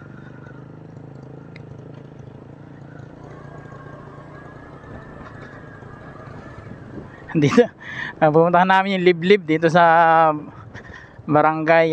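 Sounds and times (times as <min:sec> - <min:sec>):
small motorcycle engine running: 0:00.0 - 0:08.3.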